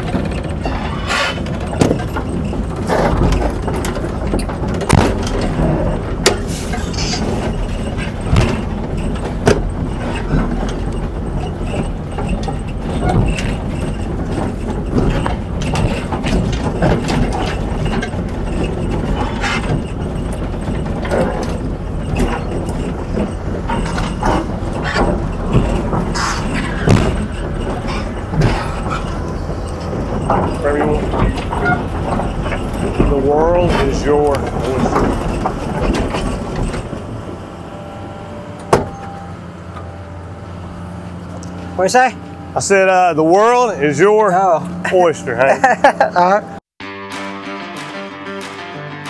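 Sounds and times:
short knocks and clanks: 0.0s - 37.3s, 38.6s - 39.9s
excavator diesel engine running: 0.0s - 46.6s.

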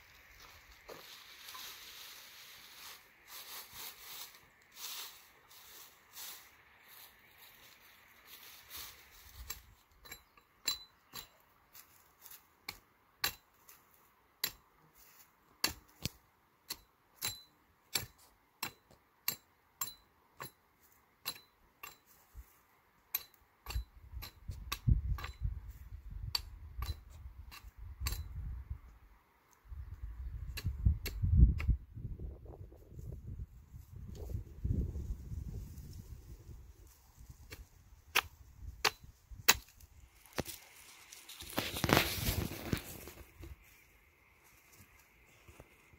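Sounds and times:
hatchet chopping wood: 37.5s - 39.7s.

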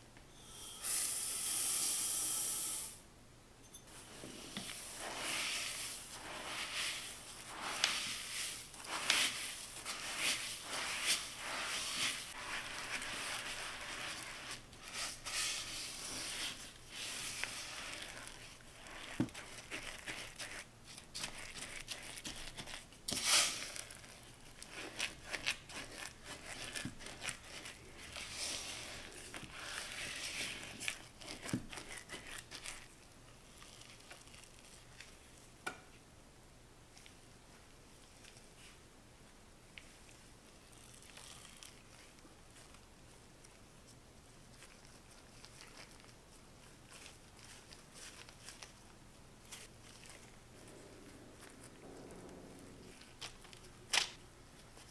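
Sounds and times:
spatula stirring sticky dough: 3.8s - 35.7s.

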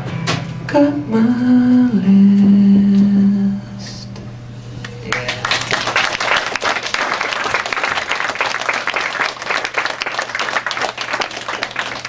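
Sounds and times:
low steady hum: 0.6s - 12.0s
audience applause: 5.1s - 12.0s.

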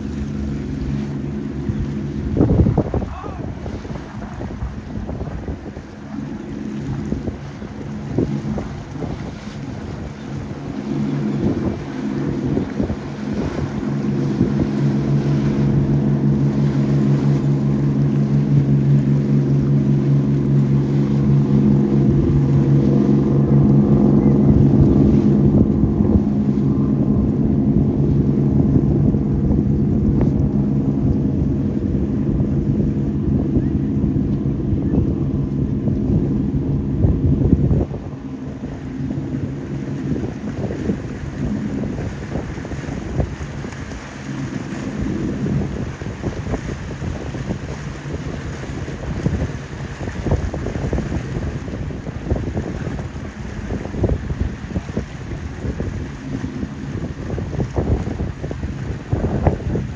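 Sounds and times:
boat engines droning: 0.0s - 59.9s
boat wake rushing: 0.0s - 59.9s
choppy waves churning: 0.0s - 59.9s
wind on microphone: 0.0s - 59.9s.

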